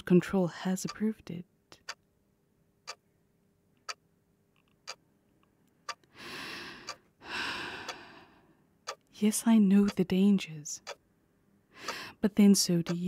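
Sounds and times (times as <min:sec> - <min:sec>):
clock ticking: 0:00.8 - 0:01.0, 0:01.8 - 0:02.0, 0:02.8 - 0:03.1, 0:03.8 - 0:04.0, 0:04.8 - 0:05.0, 0:05.8 - 0:06.1, 0:08.8 - 0:09.1, 0:09.8 - 0:10.2, 0:10.8 - 0:11.0
person breathing in and sighing: 0:06.1 - 0:08.6, 0:11.7 - 0:12.2.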